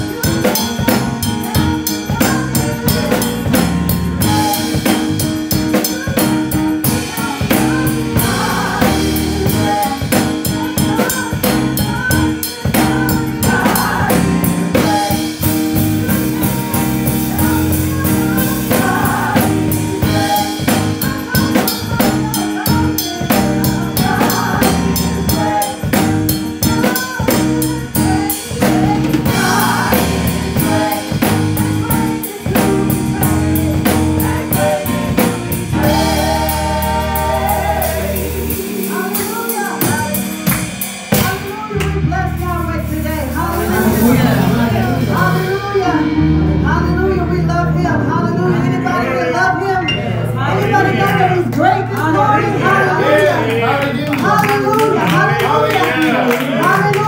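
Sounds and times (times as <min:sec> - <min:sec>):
women singing: 0:00.0 - 0:42.8, 0:43.4 - 0:46.1, 0:48.4 - 0:57.0
drum kit beat: 0:00.0 - 0:47.8, 0:50.3 - 0:57.0
electronic keyboard: 0:00.0 - 0:57.0.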